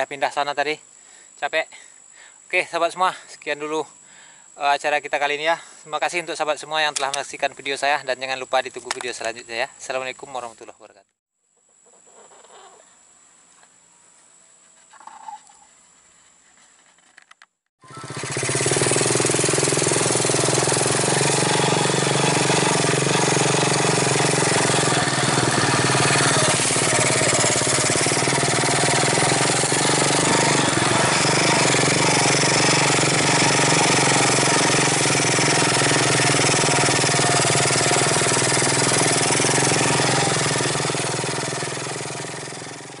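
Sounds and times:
small motorcycle engine running: 17.8 - 43.0.

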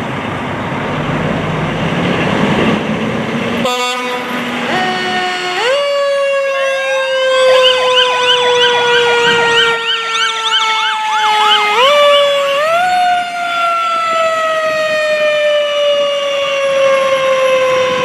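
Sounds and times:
air horn blaring: 3.6 - 5.8
electronic siren yelping: 4.7 - 18.0.

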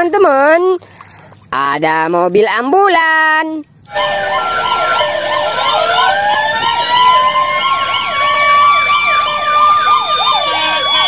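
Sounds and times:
wailing siren: 3.9 - 11.0
yelping siren: 3.9 - 11.0.

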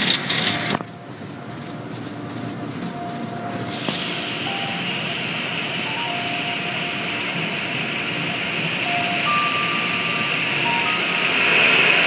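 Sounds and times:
car wash machinery running: 0.0 - 12.0
faint held tones: 0.9 - 7.4, 8.7 - 11.4.

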